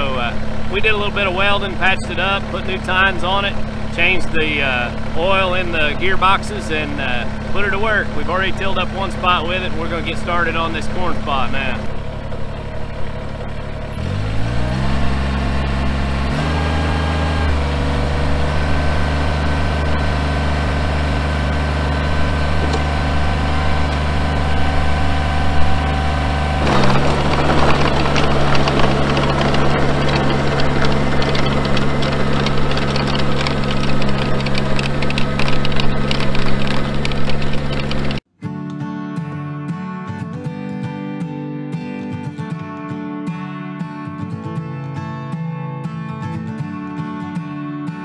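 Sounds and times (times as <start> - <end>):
rotary tiller in soil: 0.0 - 38.2
tractor diesel engine revving: 0.0 - 38.2
rattle of knocking clods: 26.6 - 38.2.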